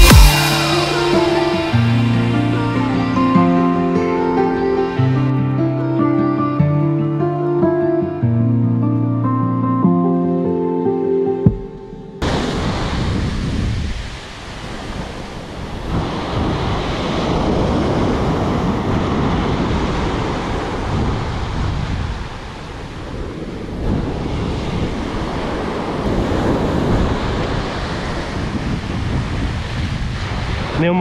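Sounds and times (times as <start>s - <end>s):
surf breaking on beach: 0.0s - 5.2s, 11.6s - 31.0s
wind buffeting microphone: 11.5s - 31.0s.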